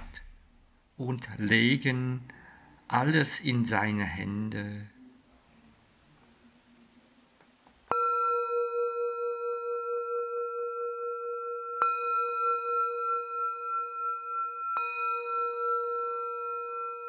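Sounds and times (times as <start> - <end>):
singing bowl ringing: 7.9 - 17.0.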